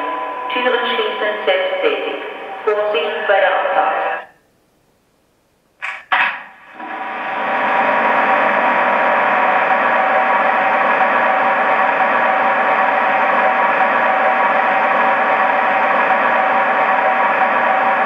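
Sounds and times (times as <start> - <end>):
electric locomotive model whir: 6.6 - 18.0.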